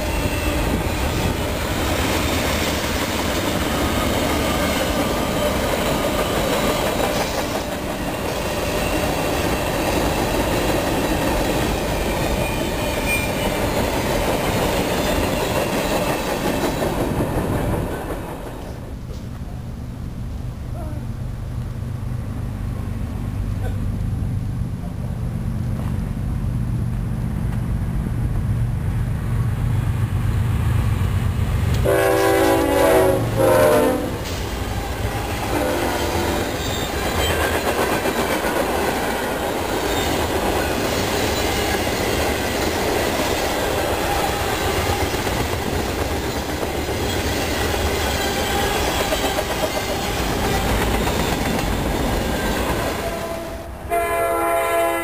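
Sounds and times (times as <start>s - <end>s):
freight cars rattling on rails: 0.0s - 19.4s, 31.1s - 53.8s
diesel locomotive rumbling: 0.0s - 55.0s
train horn blasts: 31.8s - 34.3s, 35.2s - 36.6s, 52.8s - 55.0s.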